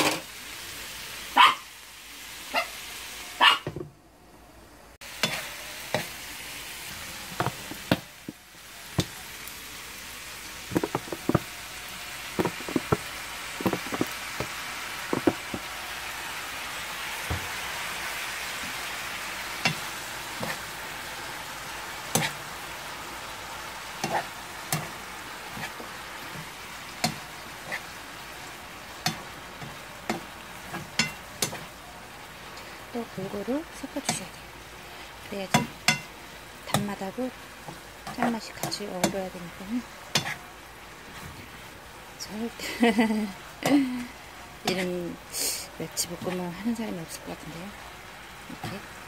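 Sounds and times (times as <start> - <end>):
food sizzling in a frying pan: 0.0 - 3.8, 5.0 - 49.0
spoon knocking and scraping pan: 5.2 - 6.1, 7.3 - 8.4, 9.0 - 9.2, 10.7 - 11.5, 12.4 - 15.7, 19.6 - 20.6, 22.1 - 22.4, 24.0 - 27.8, 29.0 - 31.7, 35.5 - 36.1, 36.7 - 37.0, 37.6 - 39.2, 40.1 - 40.4.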